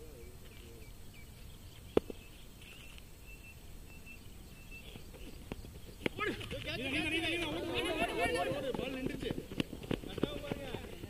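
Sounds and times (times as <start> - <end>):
faint high chirping: 0.0 - 7.3.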